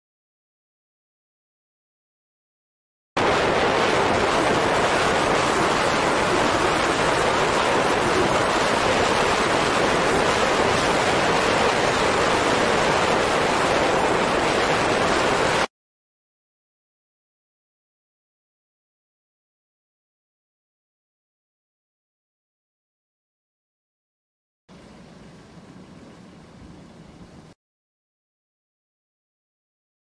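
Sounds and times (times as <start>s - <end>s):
steady rushing hiss: 3.2s - 15.7s.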